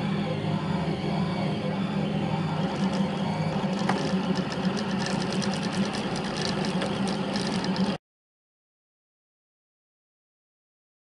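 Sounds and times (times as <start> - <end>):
stepper motors buzzing: 0.0 - 8.0
rapid fine ticking: 2.7 - 8.0.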